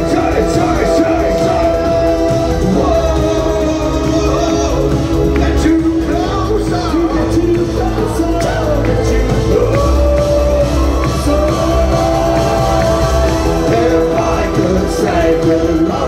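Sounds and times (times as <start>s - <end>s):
synth-pop band playing live: 0.0s - 16.0s
crowd shouts: 9.7s - 15.5s.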